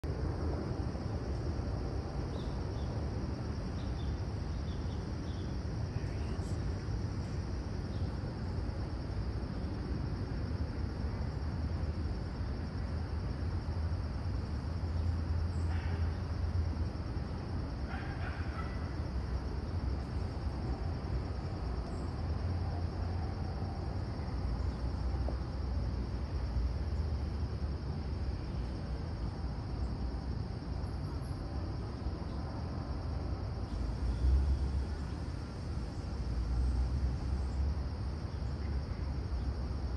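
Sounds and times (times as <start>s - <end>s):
low outdoor rumble: 0.0s - 39.9s
faint bird calls: 17.9s - 19.0s.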